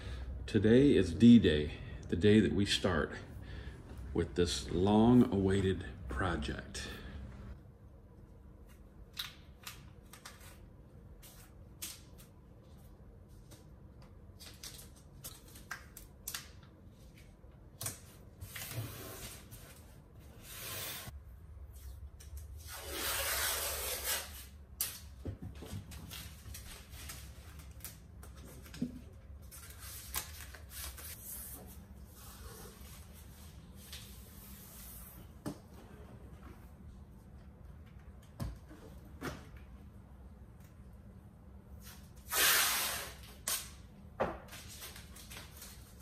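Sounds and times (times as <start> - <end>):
tape rubbing and rustling: 18.4 - 25.1.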